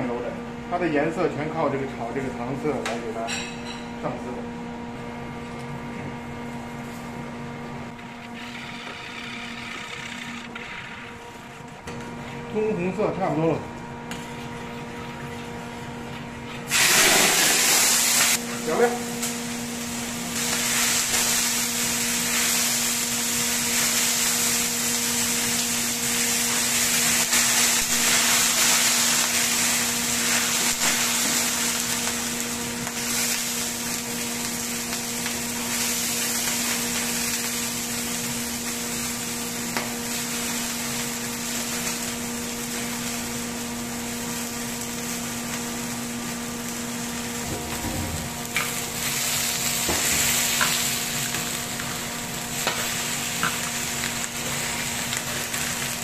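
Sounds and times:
low machinery hum: 0.0s - 56.0s
meat sizzling in a wok: 16.7s - 18.5s, 19.2s - 56.0s.

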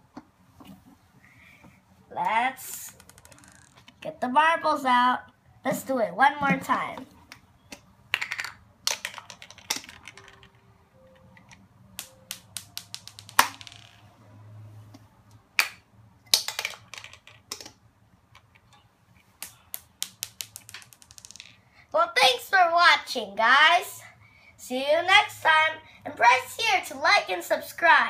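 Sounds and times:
plastic toy clicks and rattles: 2.7s - 3.9s, 8.2s - 10.6s
marbles knocking in plastic globe: 12.6s - 14.0s, 20.0s - 21.5s.

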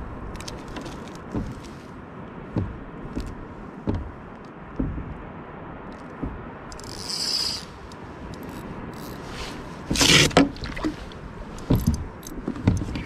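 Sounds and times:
water lapping against hull: 0.0s - 13.0s
fishing gear scraping on kayak: 6.8s - 11.7s.

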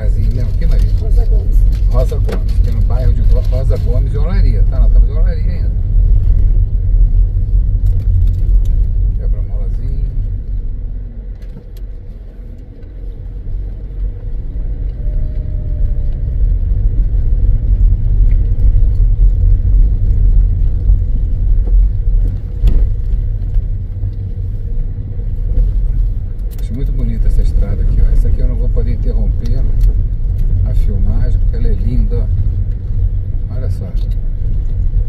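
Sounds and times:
car engine and tyre noise: 0.0s - 35.0s.

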